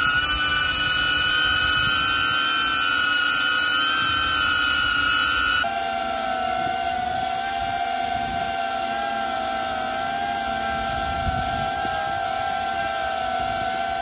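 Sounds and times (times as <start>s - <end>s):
drone propeller whine: 0.0s - 14.0s.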